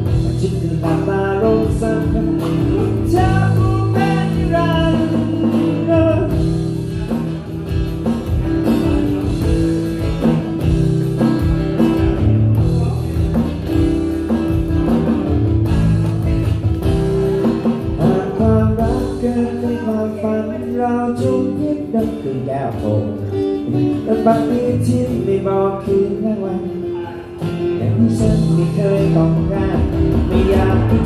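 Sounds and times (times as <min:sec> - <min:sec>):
person singing: 0:00.0 - 0:07.3, 0:16.9 - 0:31.0
acoustic guitar strumming: 0:00.0 - 0:31.0.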